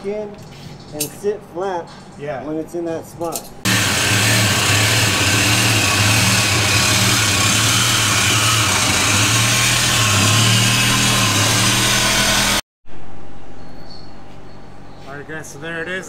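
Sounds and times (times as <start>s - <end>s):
arc welder crackling: 3.7s - 12.6s
low buzz: 3.7s - 13.8s.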